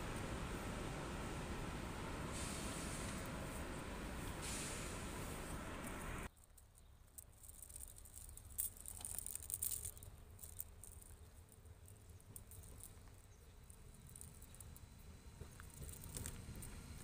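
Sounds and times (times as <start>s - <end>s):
steady hiss: 0.0s - 6.3s.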